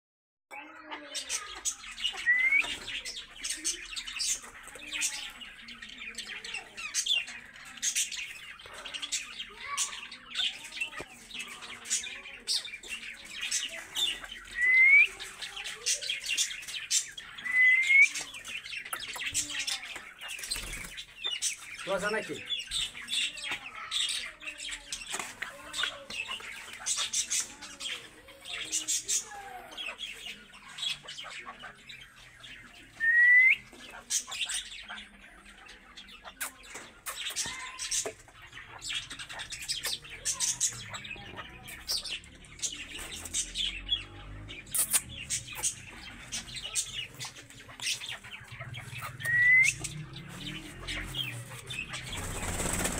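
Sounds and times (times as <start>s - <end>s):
partridges chirping: 1.1s - 52.9s.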